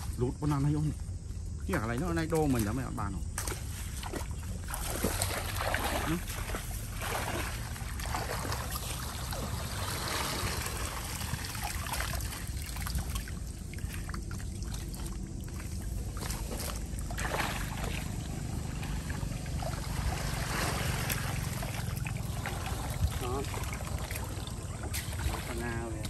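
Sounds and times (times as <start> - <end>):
muddy water sloshing: 0.0 - 26.0
short water splashes: 1.6 - 26.0
steady low rumble: 6.3 - 26.0.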